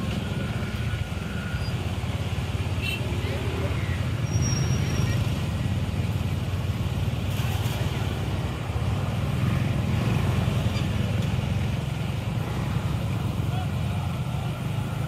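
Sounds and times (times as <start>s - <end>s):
cast net splashing on water: 7.1s - 8.4s.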